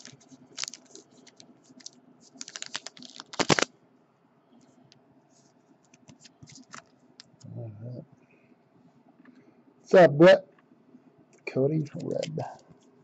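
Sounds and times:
plastic sleeve crackling: 0:00.0 - 0:03.7, 0:12.0 - 0:12.6.

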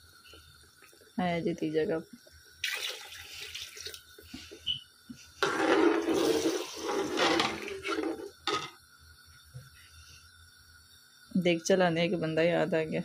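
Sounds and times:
water pouring into a pot: 0:02.4 - 0:04.4, 0:05.4 - 0:08.7.

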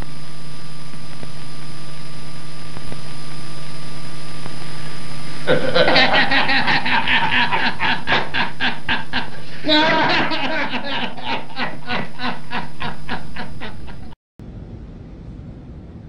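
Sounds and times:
low hum with hiss: 0:00.0 - 0:16.0
loud pulsing laughter: 0:05.4 - 0:14.2.

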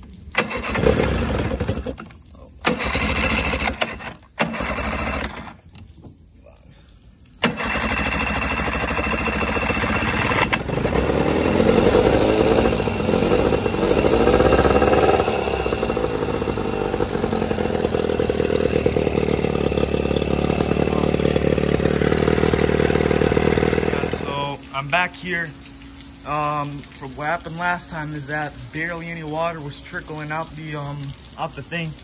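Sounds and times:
outboard motor running: 0:00.3 - 0:02.0, 0:02.6 - 0:05.6, 0:07.4 - 0:26.6.

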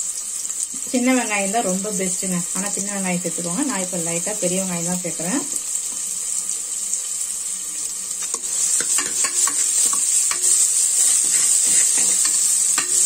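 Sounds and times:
onions sizzling in oil: 0:00.0 - 0:13.0
metal ladle scraping pot: 0:08.2 - 0:13.0.

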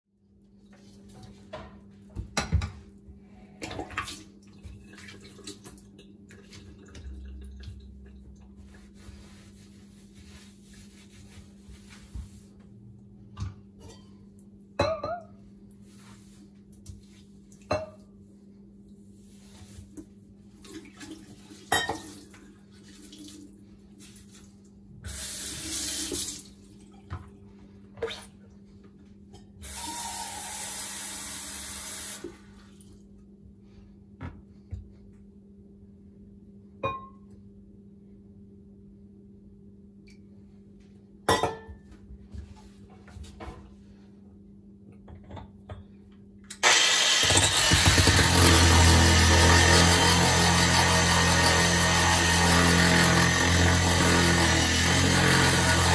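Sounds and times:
faucet water running into sink: 0:25.1 - 0:26.5, 0:29.6 - 0:32.2.

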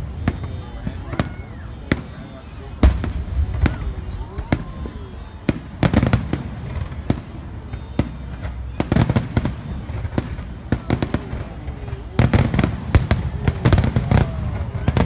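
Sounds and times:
fireworks bursting: 0:00.0 - 0:15.0.

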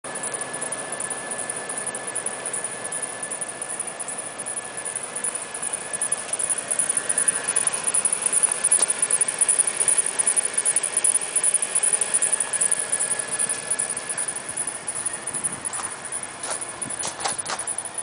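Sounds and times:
high-pitched engine squeak: 0:00.0 - 0:18.0
steady engine noise: 0:00.0 - 0:18.0.

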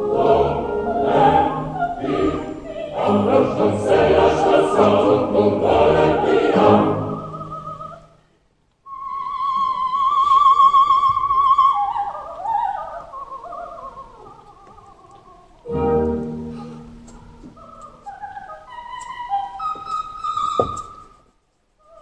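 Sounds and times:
opera chorus and orchestra: 0:00.0 - 0:08.2, 0:08.9 - 0:21.0.

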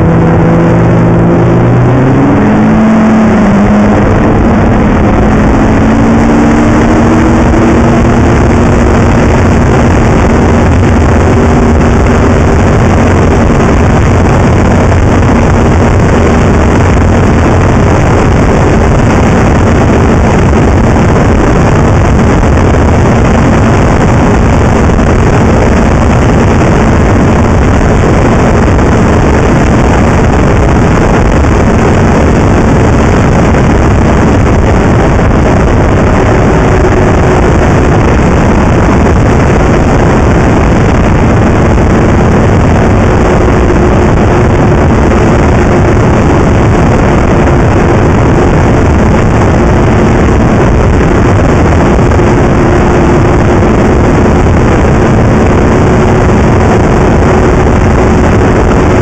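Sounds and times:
snowmobile engine running: 0:00.0 - 0:59.0
wind rush on microphone: 0:00.0 - 0:59.0.

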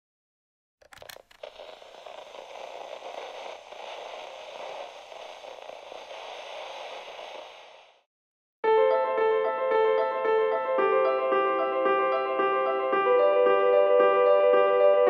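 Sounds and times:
sharp static crackles: 0:00.8 - 0:08.1
steady static hiss: 0:01.0 - 0:08.0.

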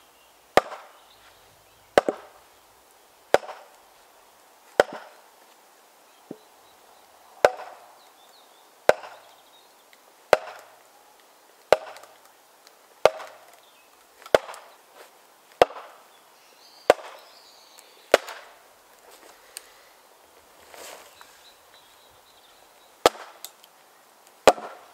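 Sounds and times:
maul knocking on wood: 0:02.0 - 0:02.3.

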